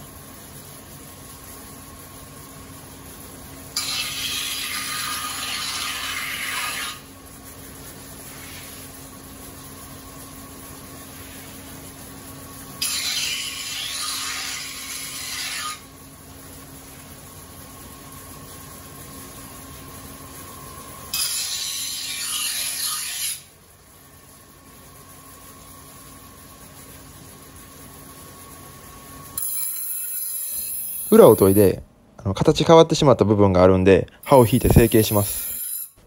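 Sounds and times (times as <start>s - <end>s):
hum of running wheel: 0.0s - 22.2s
knife grinding on sharpening wheel: 3.8s - 7.1s, 12.8s - 15.9s, 21.1s - 23.5s, 29.4s - 31.4s, 34.6s - 36.0s.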